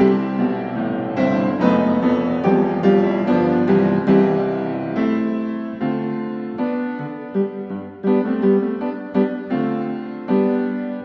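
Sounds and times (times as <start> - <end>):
gentle piano piece: 0.0 - 11.0.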